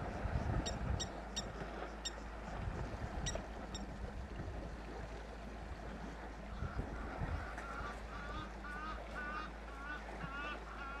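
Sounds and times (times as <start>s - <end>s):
steady low rumble: 0.0s - 10.3s.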